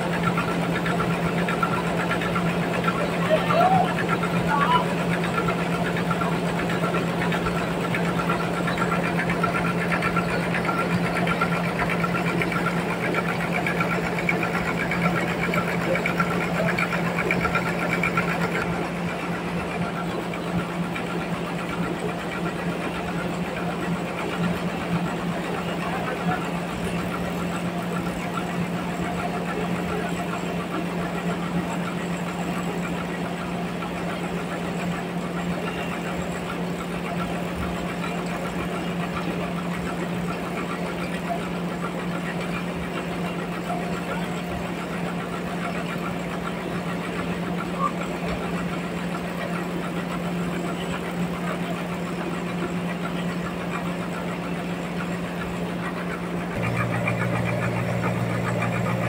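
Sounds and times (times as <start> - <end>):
bandsaw sawmill cutting log: 56.2 - 59.0.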